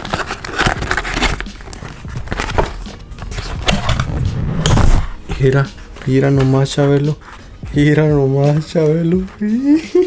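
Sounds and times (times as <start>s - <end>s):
cardboard box rustling and scraping: 0.1s - 5.2s.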